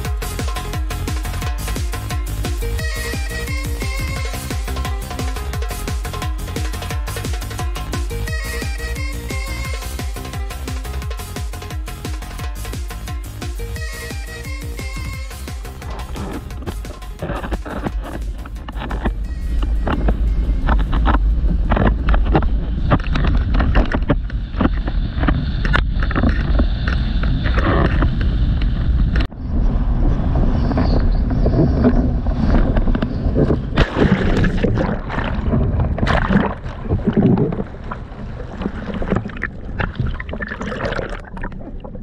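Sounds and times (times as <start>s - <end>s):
water rushing and splashing: 14.1s - 26.6s, 32.3s - 42.0s
wind buffeting microphone: 15.8s - 42.0s.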